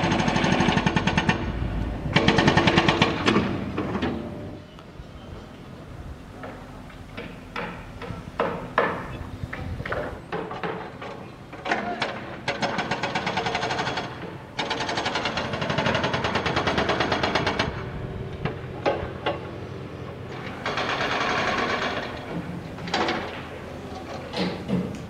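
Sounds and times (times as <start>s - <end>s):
power tool hammering: 7.2s - 9.1s.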